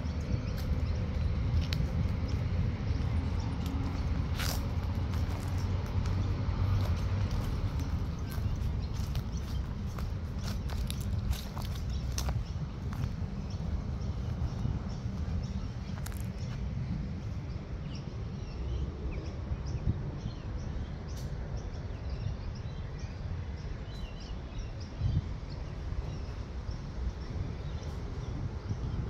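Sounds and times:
low rumble: 0.0s - 22.6s
birds chirping: 0.0s - 29.0s.

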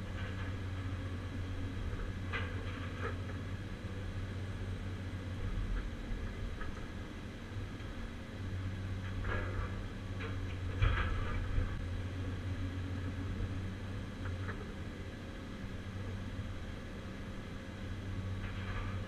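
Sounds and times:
diesel engine running: 0.0s - 19.0s
metal clanks and knocks: 9.0s - 11.8s, 18.4s - 19.0s.

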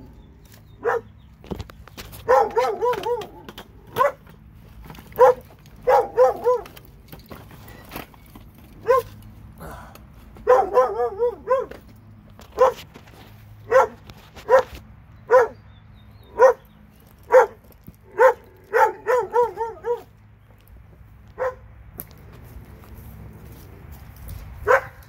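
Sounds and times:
dog barking: 0.8s - 1.1s, 2.2s - 4.3s, 5.2s - 6.7s, 8.8s - 9.1s, 10.4s - 11.8s, 12.6s - 12.8s, 13.7s - 15.6s, 16.4s - 16.7s, 17.3s - 20.1s, 21.4s - 21.6s, 24.6s - 25.0s.

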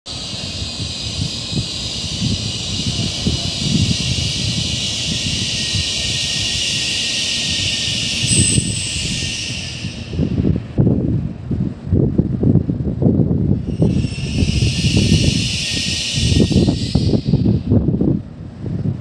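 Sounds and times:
steady high hiss: 0.1s - 10.8s, 13.7s - 17.8s
wind buffeting microphone: 0.1s - 19.0s.

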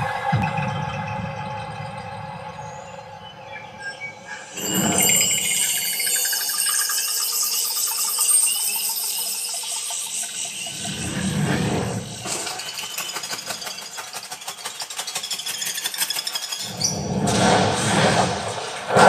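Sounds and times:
insect-like clicking rattle: 4.6s - 17.0s.

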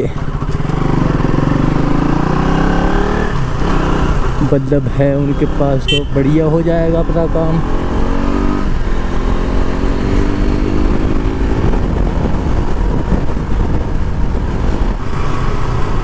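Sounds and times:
motorcycle engine running: 0.0s - 16.0s
wind rumble on microphone: 7.6s - 16.0s.

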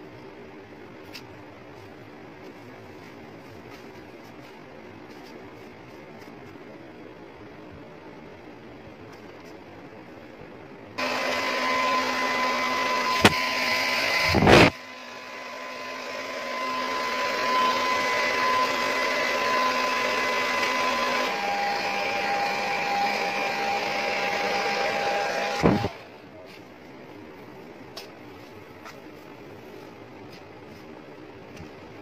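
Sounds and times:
hair dryer running: 11.0s - 26.1s.

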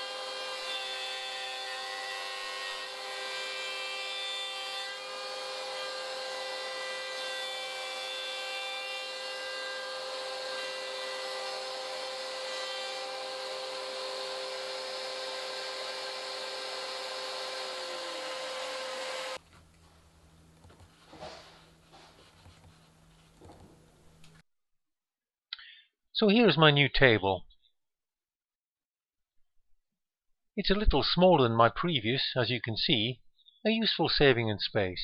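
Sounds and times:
dust extraction: 0.0s - 19.4s
trim router cutting wood: 0.0s - 19.4s.

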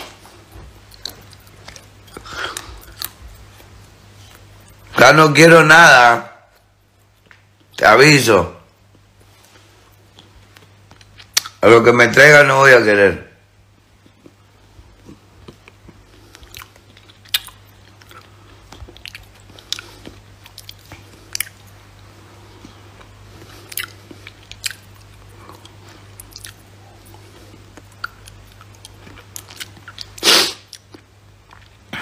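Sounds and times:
low steady hum: 0.0s - 32.0s
mouth clicks and smacks: 10.0s - 11.6s, 22.6s - 32.0s.

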